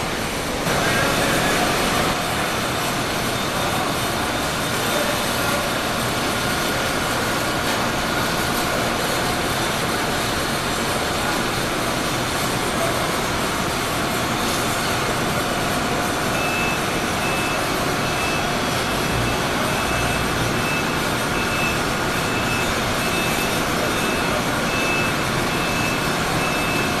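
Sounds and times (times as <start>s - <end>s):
reversing alarm beeping: 16.2s - 27.0s.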